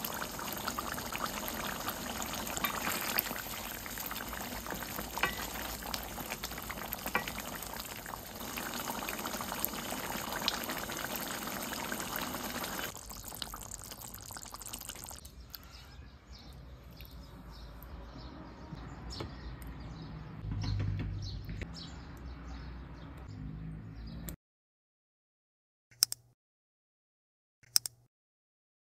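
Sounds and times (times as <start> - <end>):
curry bubbling and sizzling in a pan: 0.0 - 15.3
wooden spatula stirring: 2.1 - 8.4
clicks: 27.6 - 28.1.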